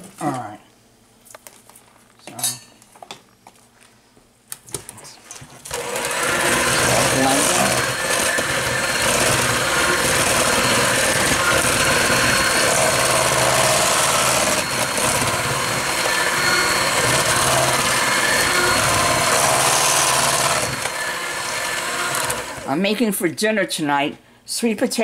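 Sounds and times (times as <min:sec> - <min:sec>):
electric hand mixer running: 0:05.7 - 0:22.7.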